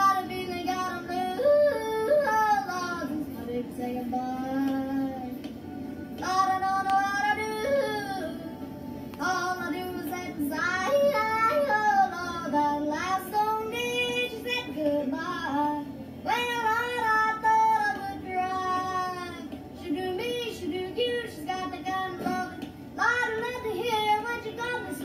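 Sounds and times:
boy singing with yodel: 0.0s - 5.4s, 6.2s - 8.4s, 9.2s - 25.0s.

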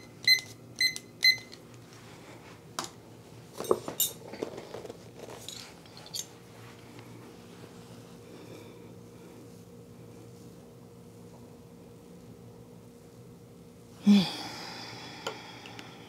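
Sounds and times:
kitchen timer beeping: 0.0s - 1.6s
light knocks and clinks: 3.6s - 4.5s.

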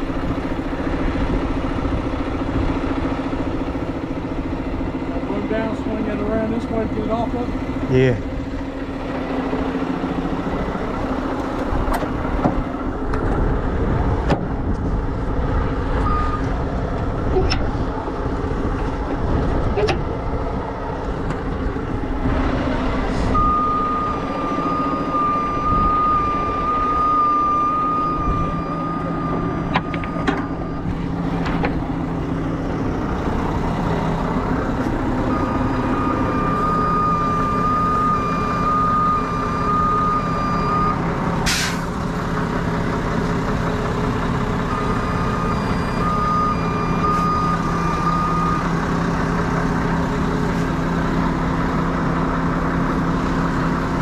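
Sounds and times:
diesel engine running: 0.0s - 54.0s
backup alarm beeping: 16.0s - 16.5s, 23.4s - 30.9s, 35.3s - 41.1s, 44.7s - 48.7s
hiss of released air: 41.4s - 41.9s.

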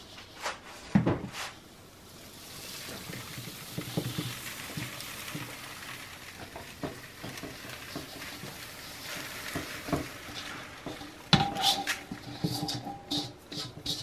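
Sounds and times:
ingredients stirred in a pot: 2.1s - 14.0s
soft knocks against a pot: 10.9s - 13.1s.

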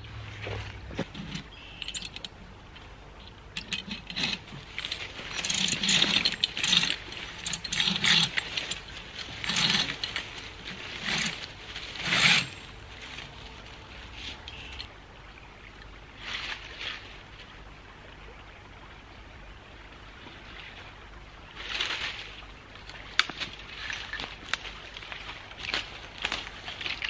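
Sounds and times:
sled scraping over leaves: 0.0s - 2.2s, 3.6s - 14.9s, 16.2s - 17.4s, 20.4s - 27.0s.

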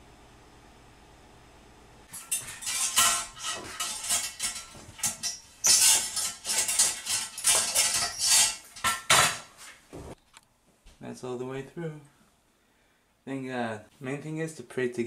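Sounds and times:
pole knocking and scraping ceramic: 2.1s - 9.6s.

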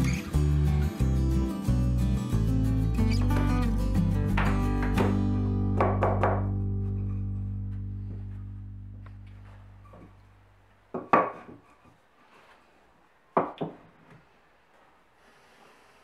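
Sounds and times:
background music chord ringing: 3.6s - 9.6s.

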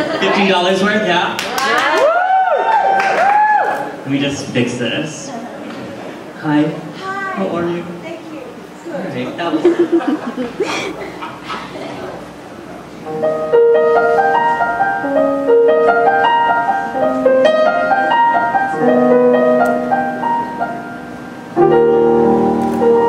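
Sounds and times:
solo piano ballad: 12.2s - 23.0s.

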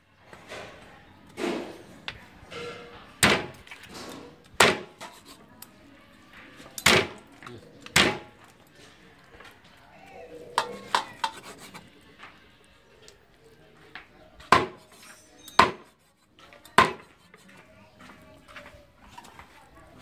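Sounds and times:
cleaver chopping on wooden block: 3.2s - 3.6s, 4.6s - 5.1s, 6.8s - 7.2s, 7.9s - 8.3s, 14.5s - 15.0s, 15.6s - 15.9s, 16.8s - 17.1s.

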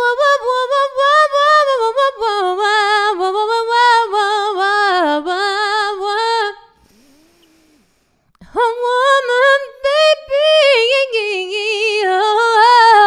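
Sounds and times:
woman singing with vibrato: 8.4s - 13.0s.

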